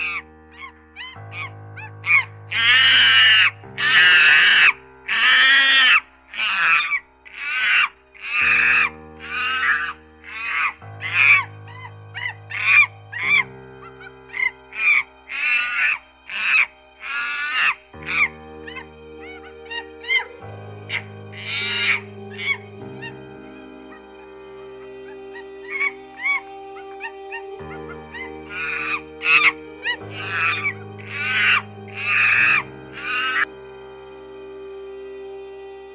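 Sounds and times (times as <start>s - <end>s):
bonobo high-pitched calls: 0.0s - 20.3s, 20.9s - 23.2s, 25.0s - 33.5s
background music sustained chords: 0.0s - 35.9s.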